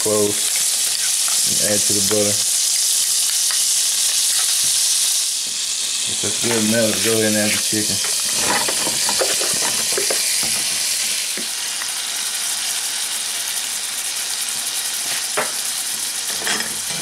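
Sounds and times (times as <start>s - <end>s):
chicken sizzling in a frying pan: 0.0s - 17.0s.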